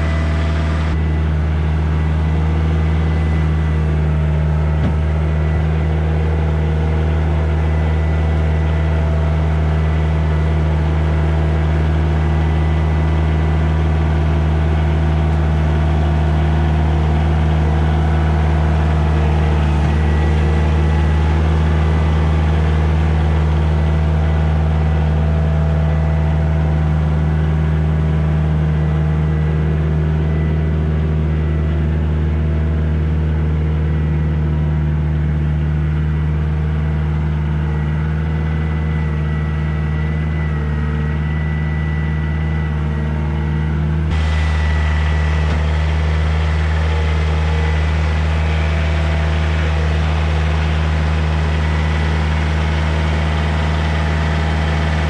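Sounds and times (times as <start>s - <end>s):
tractor diesel engine running: 0.0s - 55.0s
thin steady whine: 37.8s - 55.0s.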